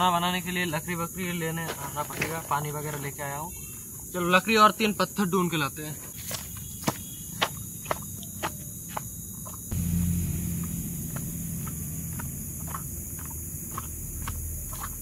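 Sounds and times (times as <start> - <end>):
insects chirring: 0.0 - 15.0
low rumble: 9.7 - 15.0.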